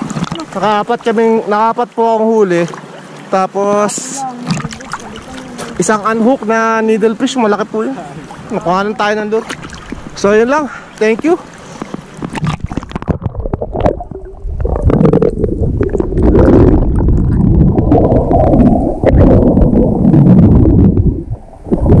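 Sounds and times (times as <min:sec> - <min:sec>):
sea water splashing: 0:00.0 - 0:22.0
muffled underwater rumble: 0:11.8 - 0:22.0
swimmer blowing bubbles: 0:11.8 - 0:22.0.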